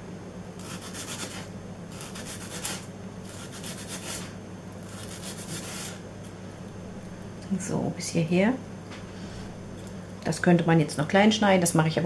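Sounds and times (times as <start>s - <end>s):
knife chopping onion on board: 0.6s - 4.3s.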